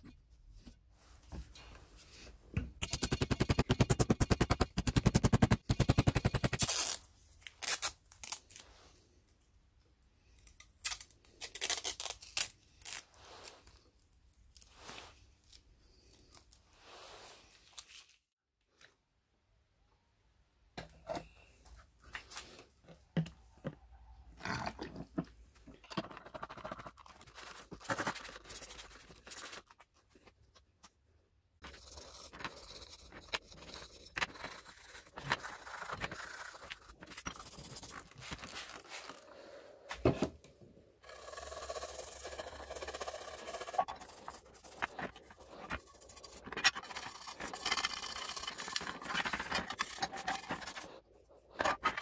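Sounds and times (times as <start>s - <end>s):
metal parts scraping and knocking: 25.7s - 28.1s, 31.6s - 38.4s, 41.0s - 50.9s, 51.5s - 52.0s.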